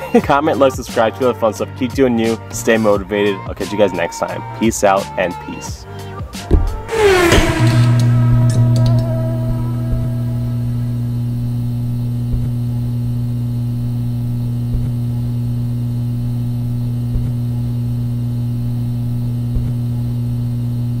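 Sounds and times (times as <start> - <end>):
loud low hum: 6.5 - 21.0.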